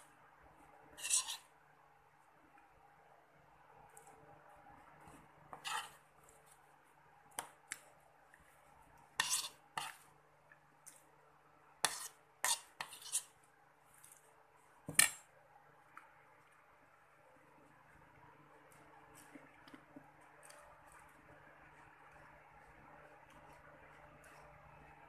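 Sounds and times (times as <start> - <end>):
metal spoon scraping a plate: 1.0 - 1.5, 5.5 - 6.0, 9.2 - 10.0, 11.8 - 13.3.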